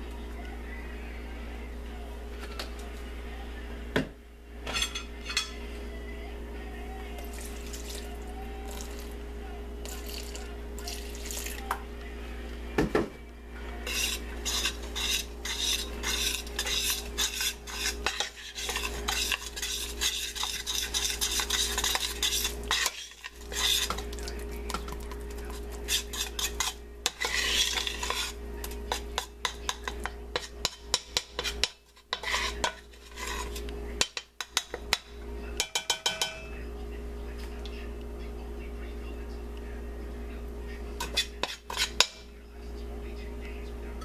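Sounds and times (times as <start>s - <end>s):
hand stirring dough in metal pot: 13.8s - 34.9s.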